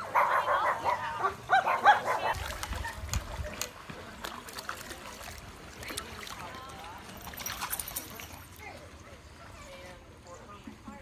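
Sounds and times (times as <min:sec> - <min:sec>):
dog yelping: 0:00.0 - 0:02.4.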